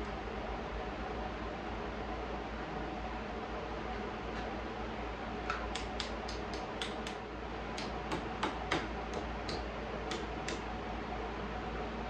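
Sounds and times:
small hammer tapping metal: 7.8 - 10.6.

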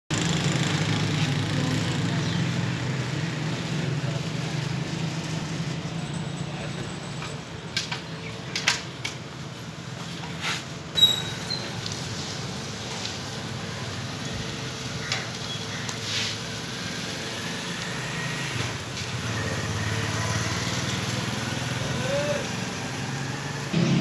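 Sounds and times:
street ambience: 0.1 - 24.0.

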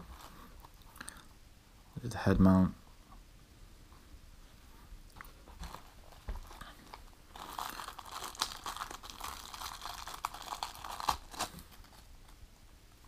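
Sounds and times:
plastic bag crinkling: 5.6 - 12.1.

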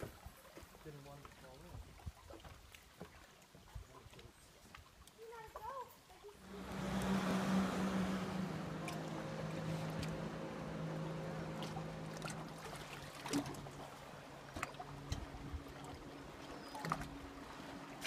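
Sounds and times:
light knocks or splashes: 0.0 - 5.7, 6.4 - 18.0
boat motor humming: 6.3 - 18.0.

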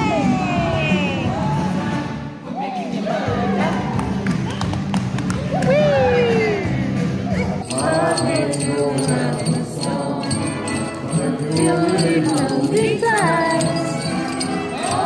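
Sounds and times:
christmas music: 7.6 - 15.0
jingle bells ringing: 7.6 - 15.0.

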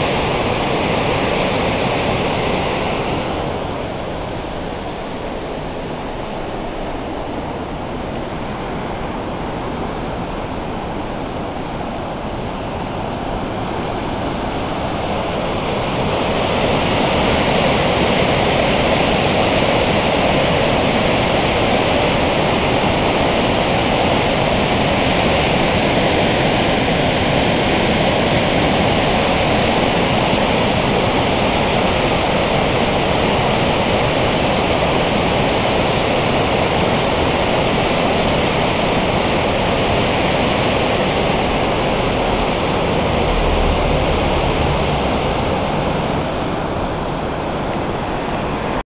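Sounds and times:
water rushing over spillway: 0.0 - 48.8.

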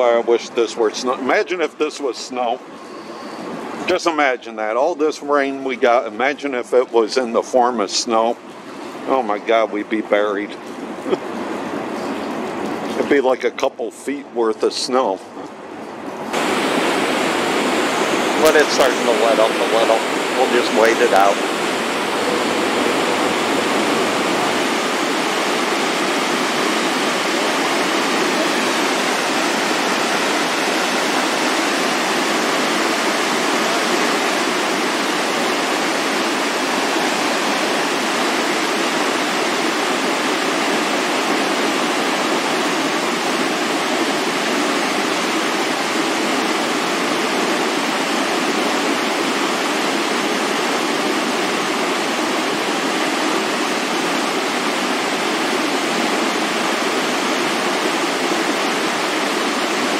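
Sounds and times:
water rushing over dam spillway: 16.3 - 59.9.

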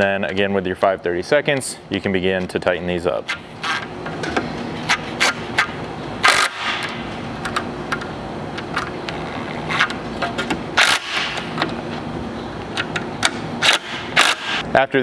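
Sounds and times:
rasping bursts: 13.6 - 14.6.

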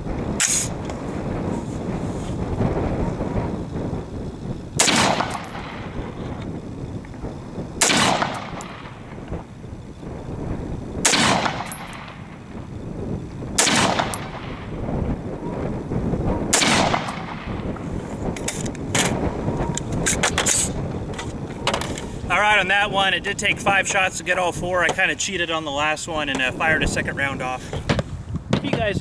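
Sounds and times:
rifle shots with echo: 4.8 - 5.9, 7.8 - 9.0, 11.0 - 12.3, 13.6 - 14.7, 16.5 - 17.6.

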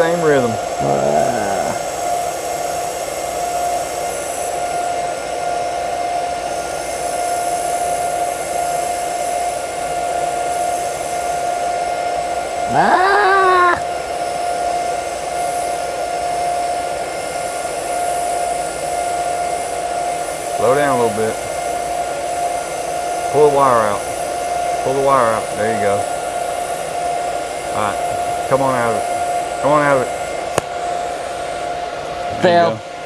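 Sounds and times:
person's voice: 0.0 - 1.8, 12.7 - 13.8
welding arc hissing: 0.0 - 31.7.

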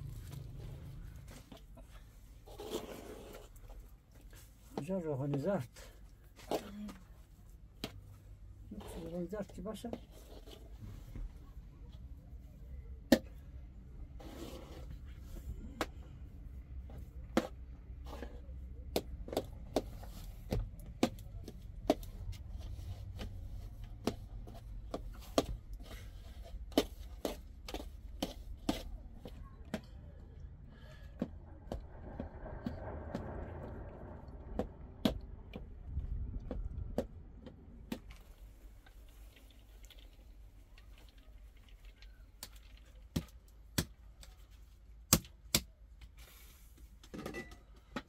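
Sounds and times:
low steady rumble: 0.0 - 4.8, 10.2 - 42.2.

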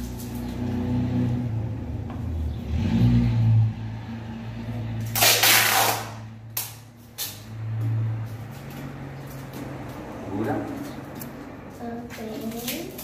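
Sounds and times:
masking tape ripping off roll: 5.0 - 7.4.

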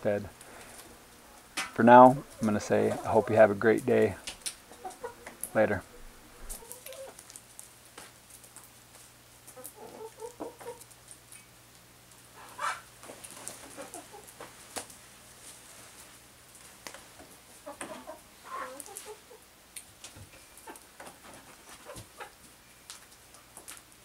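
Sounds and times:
hens clucking: 0.7 - 7.2, 9.5 - 10.9, 12.4 - 14.5, 17.2 - 19.5, 20.2 - 22.5.

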